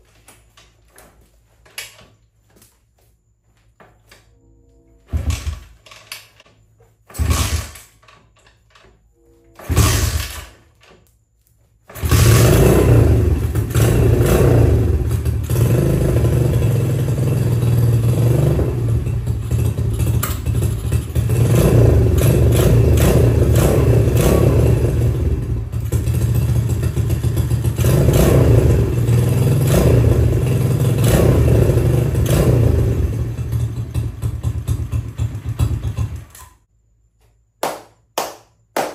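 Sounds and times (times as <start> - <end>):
motorbike engine revving: 7.1 - 7.9, 9.6 - 10.6, 11.9 - 36.4
engine kick start: 7.1 - 8.2, 9.6 - 10.6.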